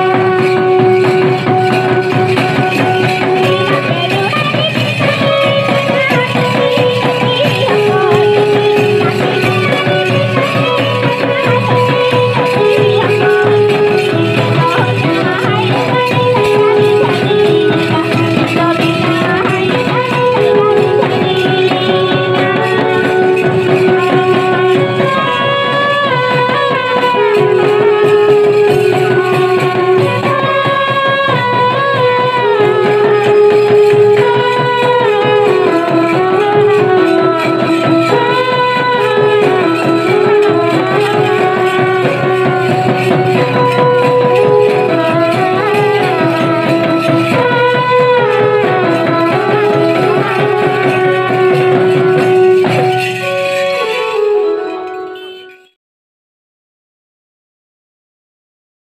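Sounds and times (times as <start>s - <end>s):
fast drum beat: 0.0s - 54.4s
trumpets playing melody: 0.0s - 55.8s.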